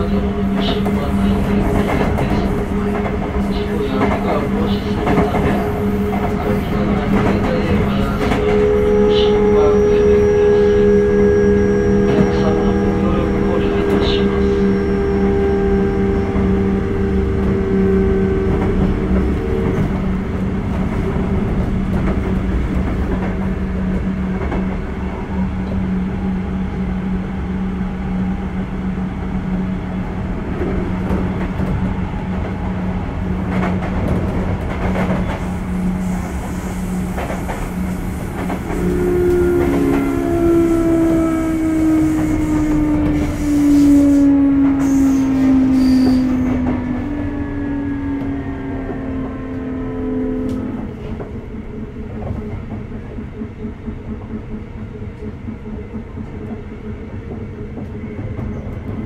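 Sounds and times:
electric train motor hum: 0.0s - 59.0s
train wheel rumble: 0.0s - 59.0s
rail-joint clicks: 33.5s - 40.8s.

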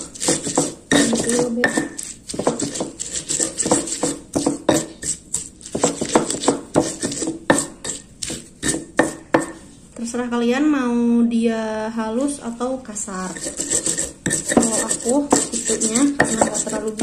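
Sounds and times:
stone pestle grinding in mortar: 0.0s - 9.7s, 13.2s - 17.0s.

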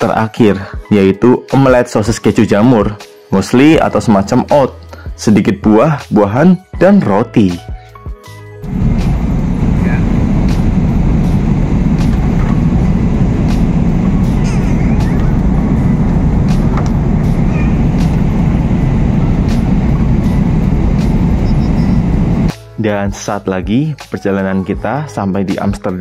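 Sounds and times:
airplane cabin drone: 8.6s - 22.5s.

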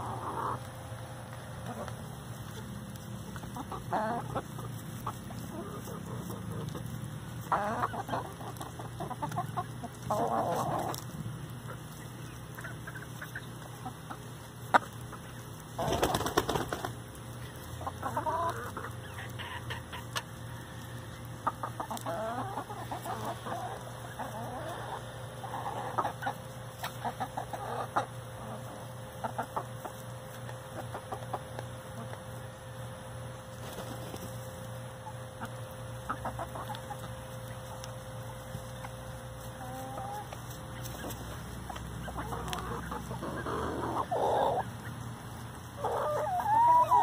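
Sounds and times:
chickens clucking softly: 0.0s - 47.0s
wings flapping: 15.8s - 17.0s.

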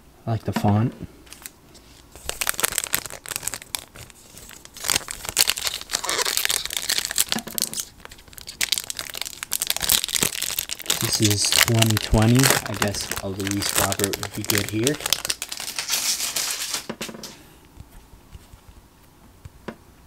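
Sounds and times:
foil wrapper crinkling and tearing: 1.3s - 16.9s.

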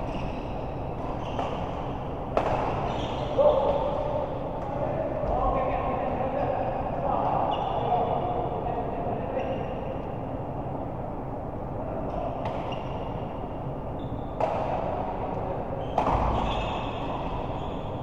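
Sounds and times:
shoe squeaks: 0.0s - 1.8s, 2.8s - 3.4s, 13.9s - 14.4s, 15.8s - 18.0s
background din in large hall: 0.0s - 18.0s.

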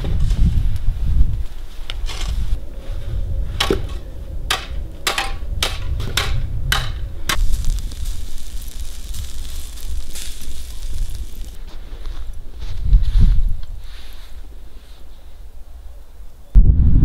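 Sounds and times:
low rumble: 2.3s - 13.7s
snow shovels scraping snow: 7.5s - 15.2s.

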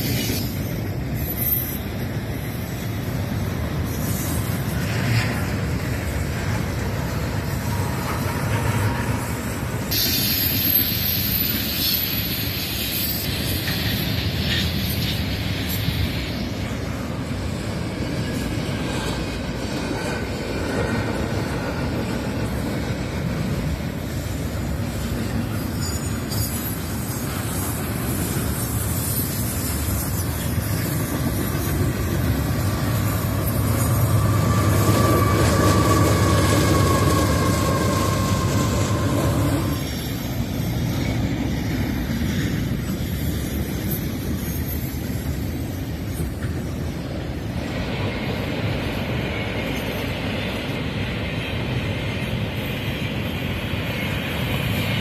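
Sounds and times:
high wheel squeal: 0.0s - 3.0s, 7.0s - 16.8s, 25.1s - 55.0s
train wheels rumbling on rails: 0.0s - 55.0s.

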